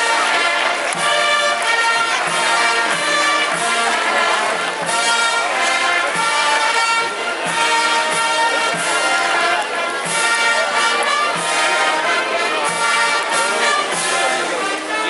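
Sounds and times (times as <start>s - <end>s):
brass band playing a march: 0.0s - 15.0s.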